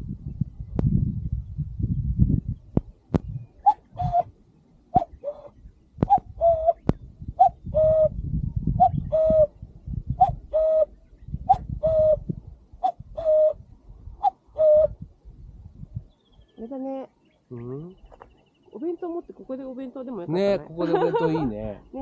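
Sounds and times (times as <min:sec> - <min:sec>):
cuckoo calling: 0:03.4 - 0:04.3, 0:04.9 - 0:08.2, 0:08.8 - 0:09.5, 0:10.2 - 0:13.6, 0:14.2 - 0:15.0.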